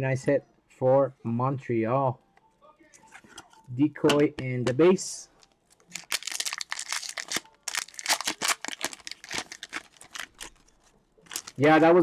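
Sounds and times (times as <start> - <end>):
card pack wrapper tearing and crinkling: 5.8 - 11.9.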